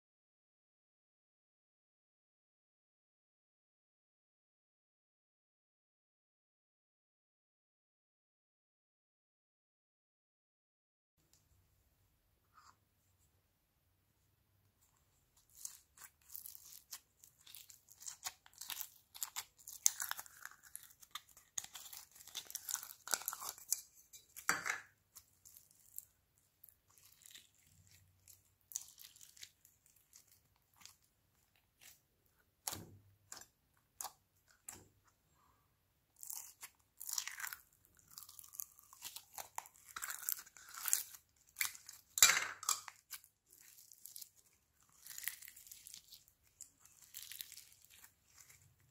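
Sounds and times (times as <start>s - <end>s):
slime crackling and popping: 15.5s - 32.0s, 36.2s - 48.9s.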